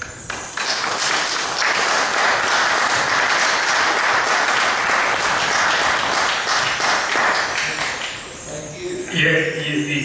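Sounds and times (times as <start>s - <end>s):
audience applauding: 0.3s - 8.2s.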